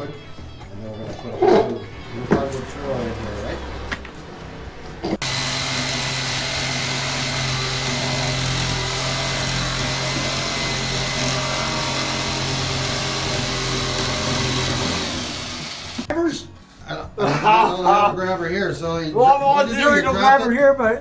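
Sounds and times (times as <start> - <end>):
jigsaw cutting plywood: 5.2 - 16.1.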